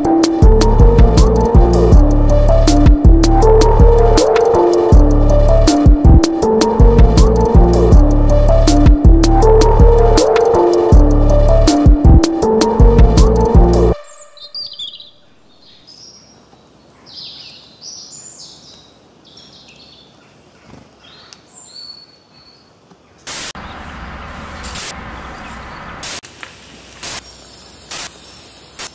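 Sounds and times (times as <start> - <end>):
small birds chirping: 14.0 - 26.1
spray can hissing: 26.0 - 28.9.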